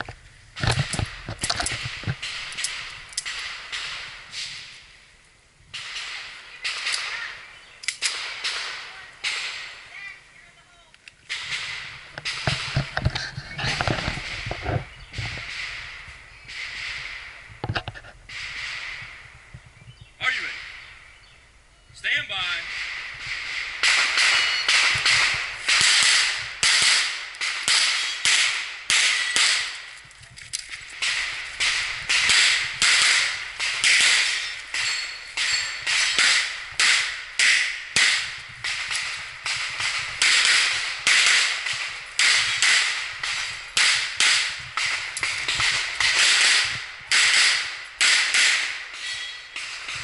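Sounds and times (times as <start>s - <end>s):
pistol shots: 0.6s - 4.6s, 5.7s - 9.8s, 22.5s - 30.0s, 30.9s - 50.0s.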